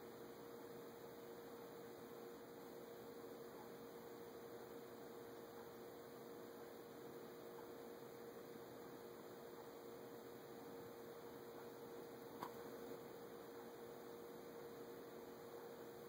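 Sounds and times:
background hiss: 0.0 - 16.0
electrical hum: 0.0 - 16.0
faint click: 12.4 - 12.6.

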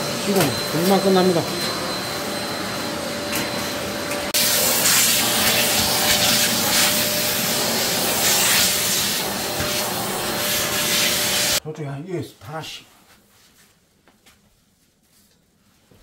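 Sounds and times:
vacuum cleaner on concrete floor: 0.0 - 11.6.

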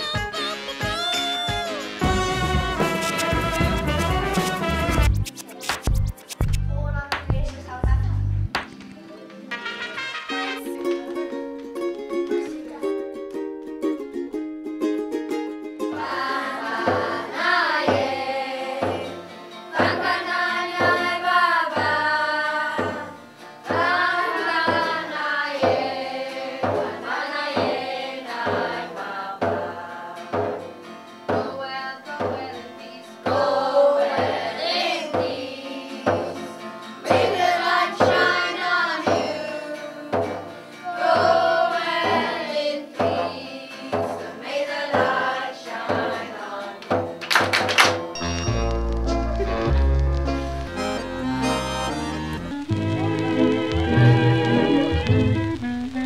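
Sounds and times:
steady drum beat: 0.0 - 8.6
children singing: 15.9 - 30.5, 31.3 - 46.8.

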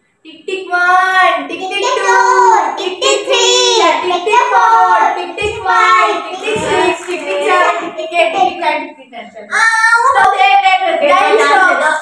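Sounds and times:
child singing: 0.7 - 8.7
low thumps: 5.3 - 7.6.

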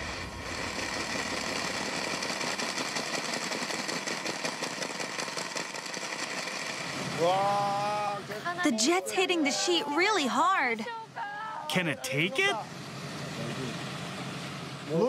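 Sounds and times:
fast even rattle: 0.4 - 6.8.

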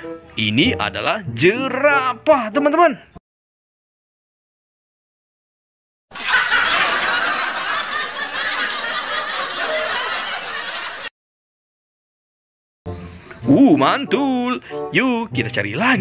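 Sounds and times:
group of people laughing: 6.1 - 11.1.

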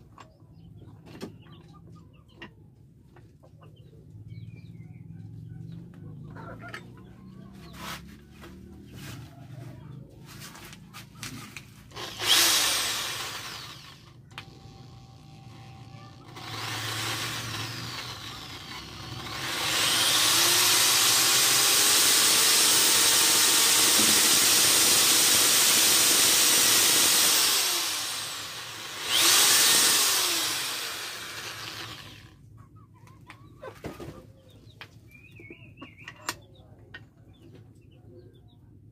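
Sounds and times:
electric drill drilling: 11.9 - 32.4.

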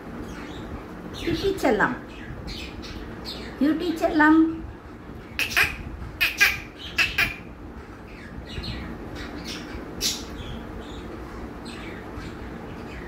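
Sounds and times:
budgerigar squawks and chirps: 5.3 - 7.5.

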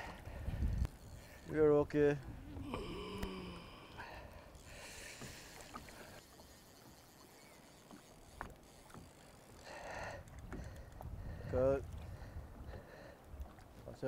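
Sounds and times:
low wind rumble: 0.0 - 5.2, 10.0 - 13.1
water noise: 0.0 - 14.0.

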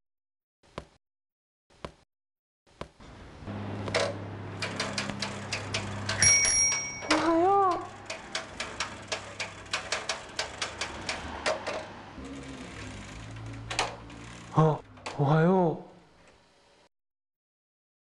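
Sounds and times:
bicycle ticking clicks: 3.8 - 15.2
bicycle bell ringing: 4.6 - 8.2.

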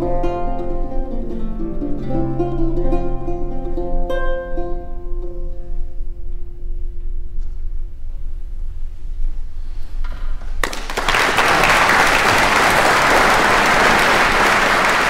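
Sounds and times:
lute note: 0.0 - 7.9
audience applause: 10.6 - 15.0.

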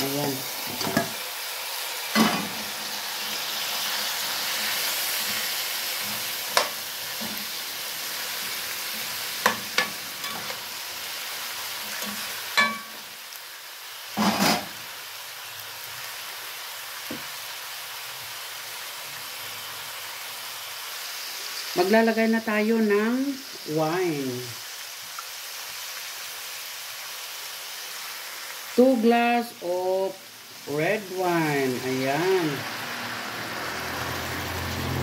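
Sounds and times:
meat sizzling in a pot: 0.0 - 35.0
metal spoon knocking on pot: 12.6 - 13.0.

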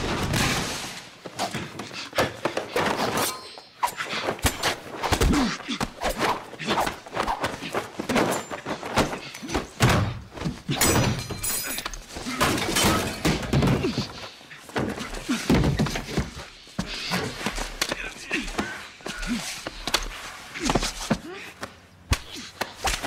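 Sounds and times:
bodies crashing into doors and walls: 0.0 - 3.2, 7.9 - 16.6
punches and thuds in a fight: 4.2 - 11.5, 12.1 - 23.0.

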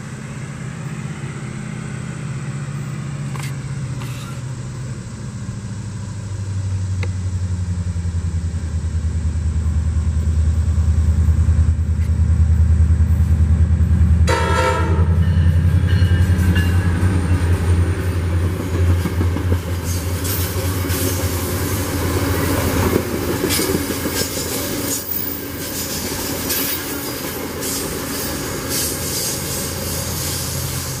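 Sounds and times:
diesel locomotive engine drone: 0.0 - 31.0
train cars rushing past: 0.0 - 31.0
train horn: 14.2 - 17.0
wheels clicking over rail joints: 15.8 - 31.0.

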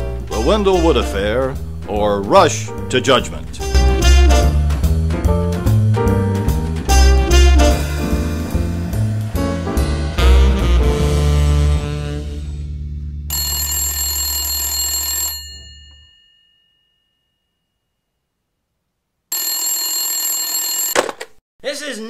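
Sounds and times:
jazz music: 0.0 - 13.3
telephone bell ringing: 13.3 - 17.3, 19.3 - 21.0.

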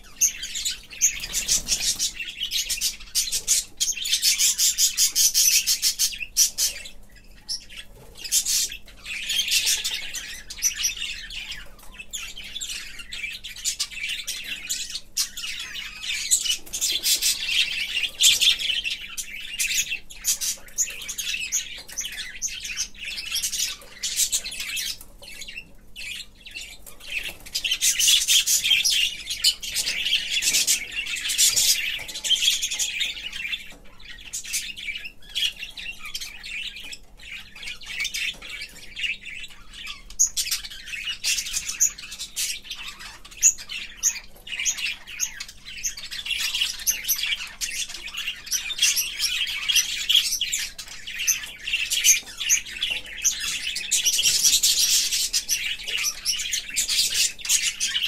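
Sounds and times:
budgerigars chirping and warbling: 0.0 - 58.0.

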